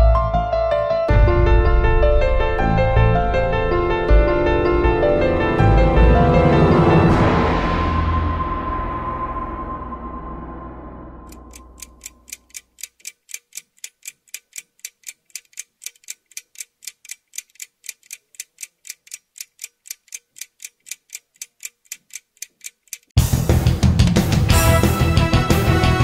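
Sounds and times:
music sting: 0:01.1 - 0:11.3
crisp ticking: 0:11.3 - 0:23.2.

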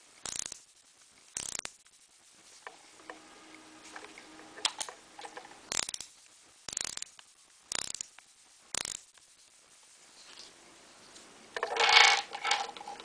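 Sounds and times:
ratcheting screwdriver clicking: 0:00.2 - 0:00.6, 0:01.4 - 0:01.8, 0:05.7 - 0:06.1, 0:06.7 - 0:08.1, 0:08.8 - 0:09.0.

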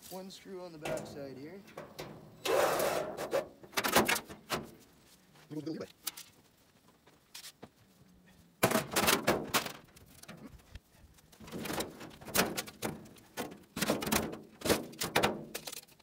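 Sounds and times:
sheet metal clattering: 0:00.7 - 0:04.7
metal scraping: 0:00.8 - 0:04.7
sheet metal bangs: 0:00.8 - 0:04.7.

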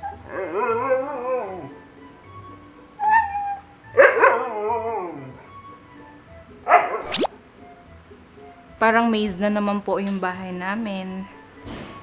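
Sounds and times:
dog howling cry: 0:00.0 - 0:05.6
dog whining: 0:00.0 - 0:05.6.

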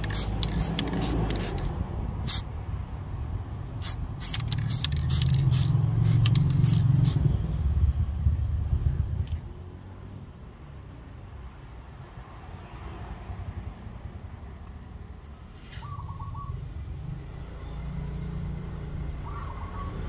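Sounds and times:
aerosol spray can hissing: 0:00.0 - 0:01.7, 0:02.3 - 0:02.5, 0:03.8 - 0:07.2.

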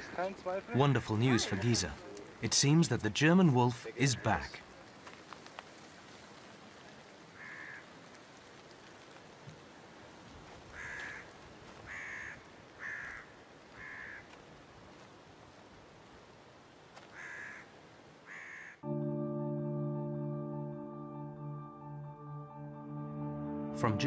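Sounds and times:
crow cawing: 0:07.4 - 0:08.0, 0:10.7 - 0:11.3, 0:11.9 - 0:14.3, 0:17.1 - 0:18.8.

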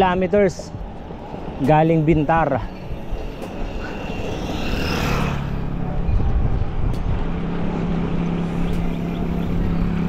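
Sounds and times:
vehicle engine humming: 0:00.0 - 0:10.0
wind rumble on microphone: 0:00.7 - 0:10.0.

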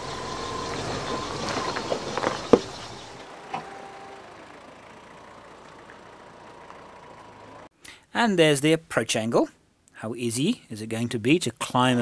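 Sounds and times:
vehicle engine and tyre noise: 0:00.0 - 0:07.7.

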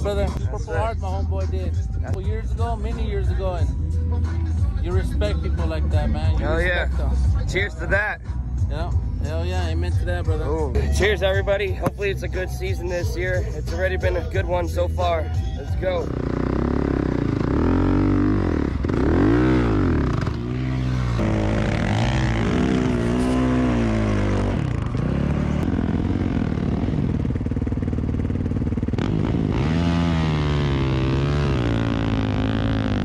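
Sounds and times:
dirt bike engine revving: 0:15.8 - 0:33.0.

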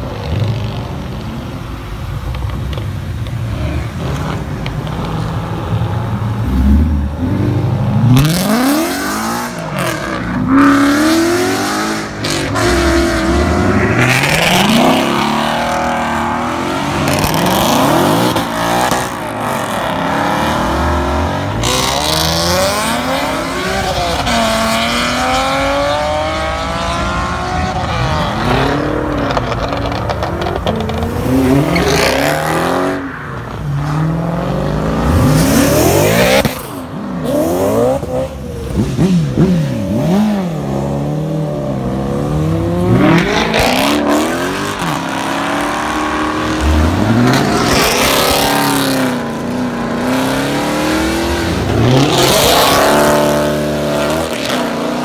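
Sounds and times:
car engines revving: 0:00.0 - 0:55.0.

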